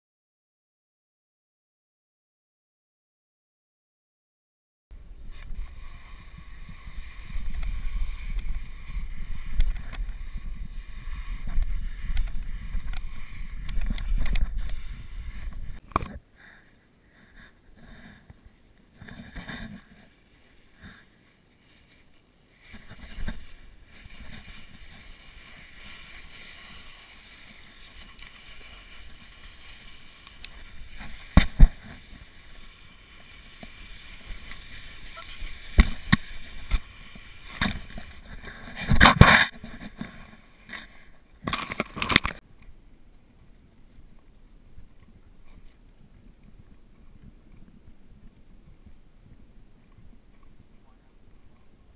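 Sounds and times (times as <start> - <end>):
plastic bag sliding on snow: 5.2 - 15.8, 19.3 - 40.9
thumps and scrapes: 5.3 - 16.2, 19.0 - 42.4.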